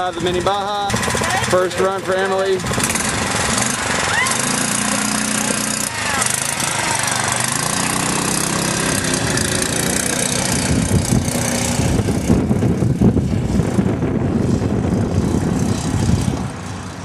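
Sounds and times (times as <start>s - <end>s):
small engine revving: 0.9s - 17.0s
tyres on gravel: 2.1s - 11.8s.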